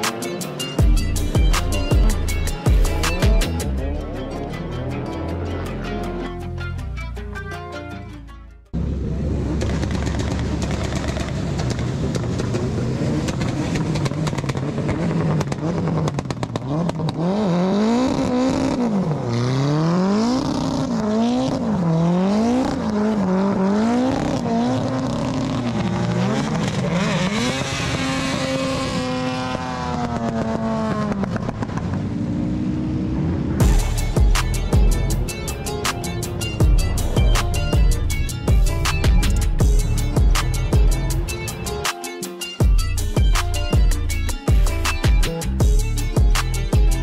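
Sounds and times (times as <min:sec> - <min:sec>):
car engine revving hard: 0:09.3 - 0:35.8.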